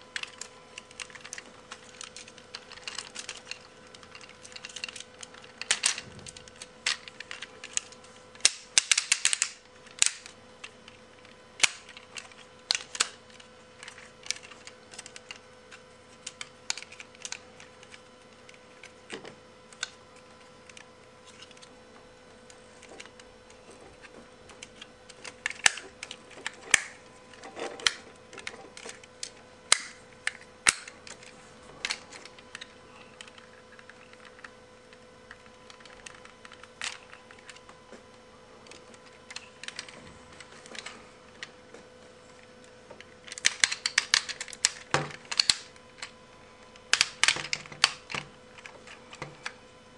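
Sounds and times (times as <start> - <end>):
faint steady hum: 0.0 - 49.9
plastic toy parts clicking: 0.2 - 10.4, 24.7 - 34.5, 38.7 - 40.0, 43.3 - 46.1, 46.9 - 48.7.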